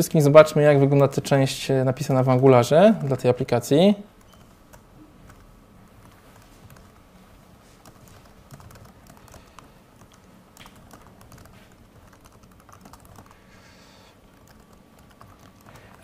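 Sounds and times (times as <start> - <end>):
keyboard keys clicking: 7.8 - 13.4, 14.3 - 16.0.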